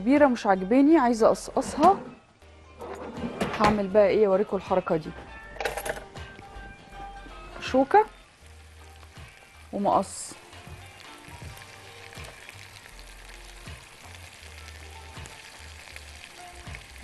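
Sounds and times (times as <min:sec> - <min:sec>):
food sizzling in a pan: 0:06.2 - 0:17.0.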